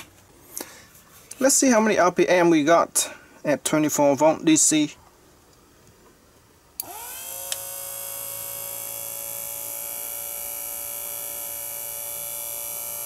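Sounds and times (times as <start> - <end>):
motor click: 6.8 - 9.2
blender motor whining: 6.8 - 13.0.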